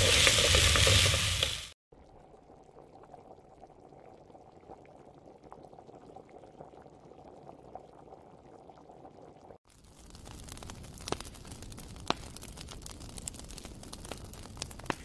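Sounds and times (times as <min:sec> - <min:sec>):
wooden spatula scraping: 0:00.0 - 0:01.8
food sizzling and bubbling: 0:00.0 - 0:15.0.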